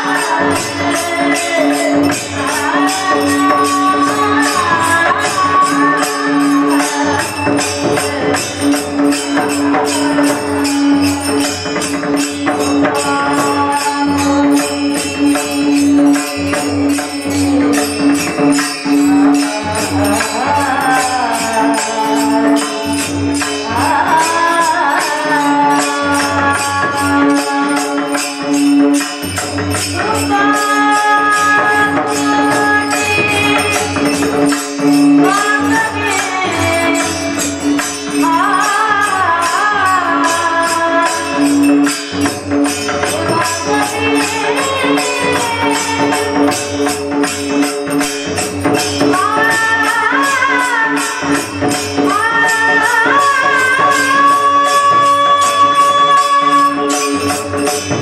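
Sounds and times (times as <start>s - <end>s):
person singing: 0.0s - 8.8s, 18.9s - 28.4s.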